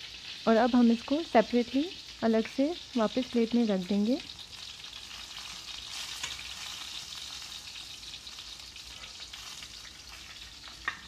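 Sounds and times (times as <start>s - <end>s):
oil sizzling: 0.0s - 11.0s.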